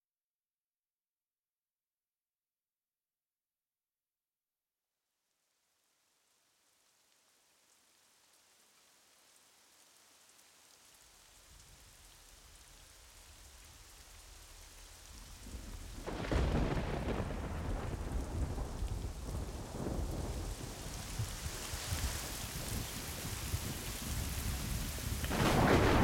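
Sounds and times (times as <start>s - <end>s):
rain: 5.4s - 26.0s
low rumble of thunder: 15.2s - 26.0s
loud thunder clap: 15.6s - 20.7s, 25.1s - 26.0s.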